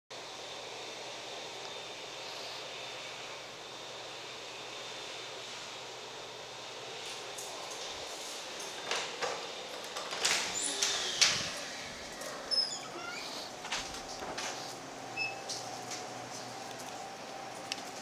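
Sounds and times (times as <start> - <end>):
short high squeaks: 10.5 - 11.2, 12.3 - 13.5.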